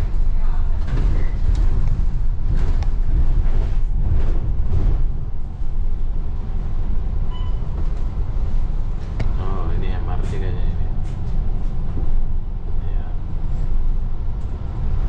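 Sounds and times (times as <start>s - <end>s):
bus engine and road rumble: 0.0s - 15.0s
brief thin tone: 7.3s - 7.6s.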